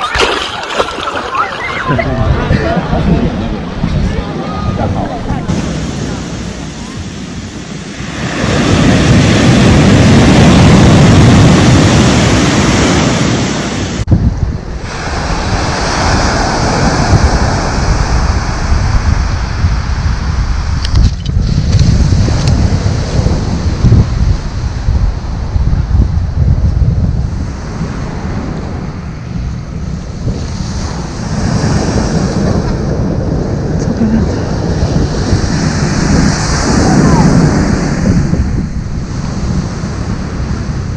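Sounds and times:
surf on pebble beach: 0.0s - 25.5s, 30.2s - 40.9s
wind buffeting microphone: 0.6s - 40.9s.

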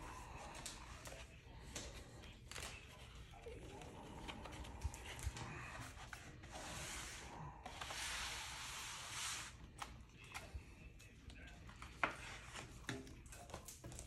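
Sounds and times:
paper sleeve sliding against cardboard: 5.8s - 9.8s.

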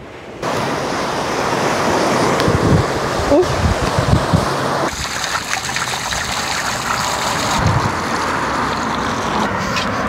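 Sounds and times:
wind: 0.0s - 10.0s
shower water splashing on concrete: 4.9s - 9.6s.

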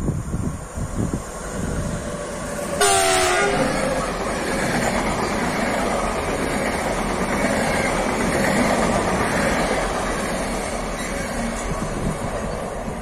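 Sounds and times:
locomotive horn blast: 2.8s - 3.8s.

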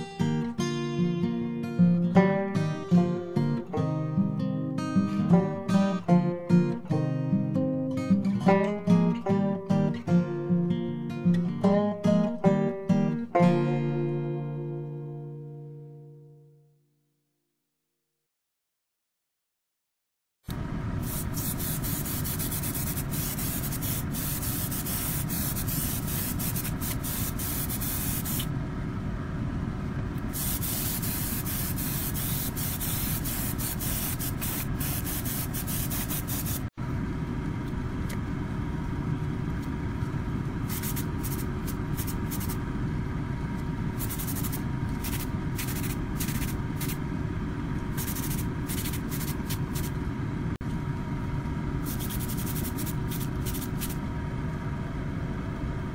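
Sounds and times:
steady hum: 20.5s - 55.9s
airbrush spraying hiss: 21.0s - 28.5s, 30.3s - 36.7s, 40.7s - 42.6s, 44.0s - 47.0s, 48.0s - 49.9s, 51.8s - 54.0s.

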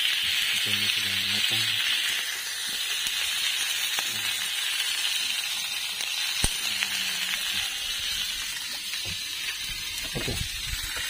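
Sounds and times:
fish sizzling on grill pan: 0.0s - 11.0s.

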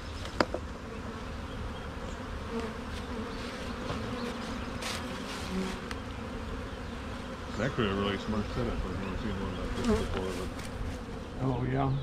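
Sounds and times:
honeybees buzzing: 0.0s - 12.0s.

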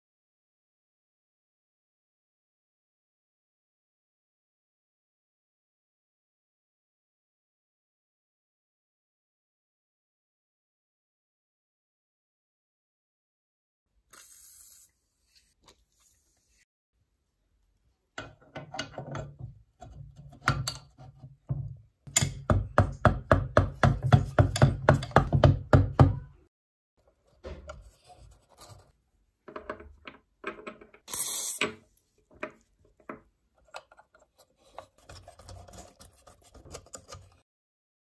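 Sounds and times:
short hissing scrape: 14.1s - 16.6s, 31.1s - 31.7s.

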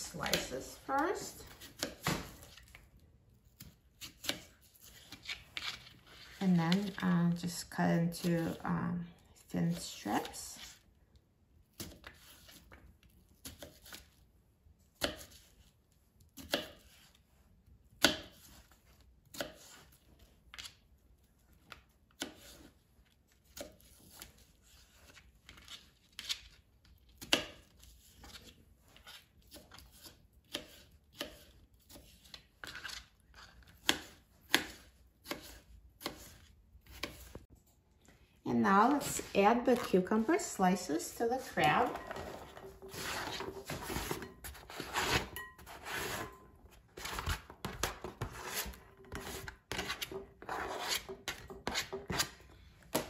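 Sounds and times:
knife chopping on cutting board: 33.8s - 37.2s.

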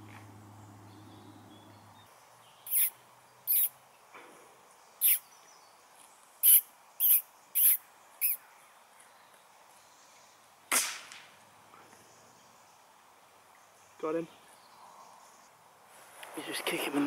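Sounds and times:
sharp high bird calls: 2.6s - 3.8s, 5.0s - 5.3s, 6.4s - 8.4s.

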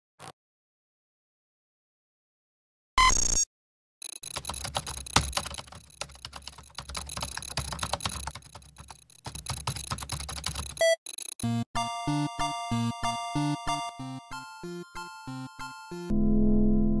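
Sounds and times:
typing on laptop keyboard: 4.1s - 11.5s.

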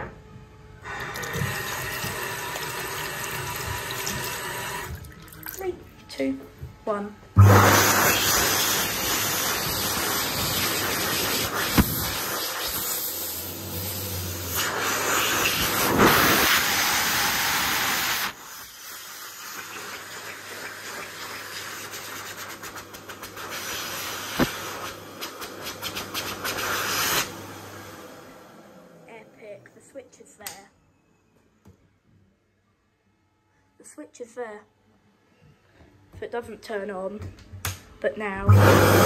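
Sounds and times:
hand dryer blowing air: 0.8s - 4.9s, 7.4s - 29.0s, 38.4s - 39.0s.

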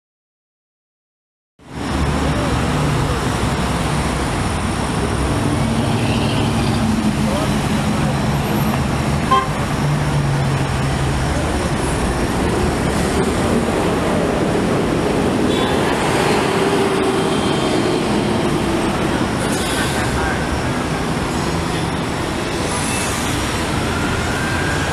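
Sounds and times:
dense highway traffic: 1.6s - 24.9s
short tone: 9.3s - 9.6s.

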